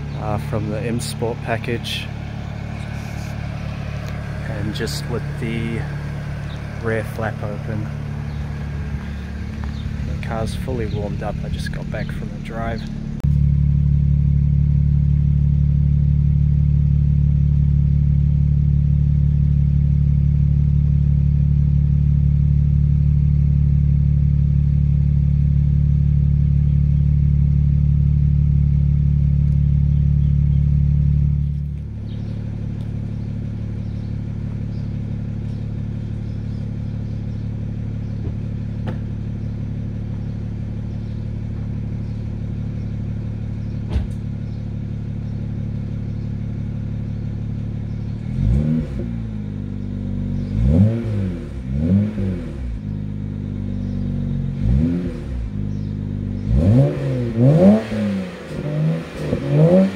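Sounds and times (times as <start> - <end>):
car engine idling: 0.0 - 59.9.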